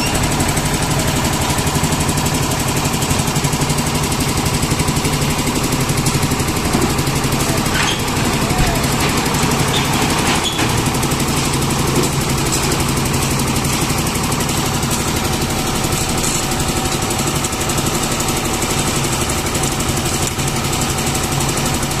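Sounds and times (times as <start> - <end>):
concrete mixer engine running: 0.0 - 22.0.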